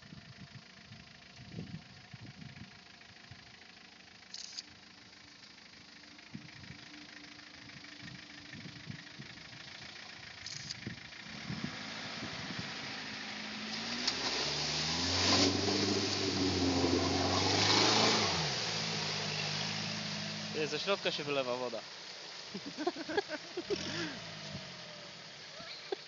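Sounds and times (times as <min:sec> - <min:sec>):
turbodiesel engine running: 0:00.0 - 0:26.0
water splashing and rushing: 0:11.8 - 0:26.0.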